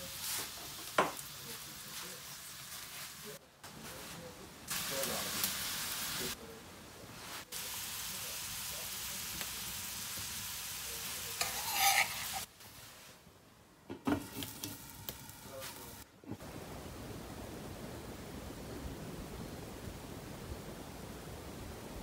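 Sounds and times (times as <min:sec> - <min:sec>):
vegetables sizzling in frying pan: 0:00.0 - 0:03.4, 0:04.7 - 0:06.4, 0:07.2 - 0:12.5, 0:14.2 - 0:16.0.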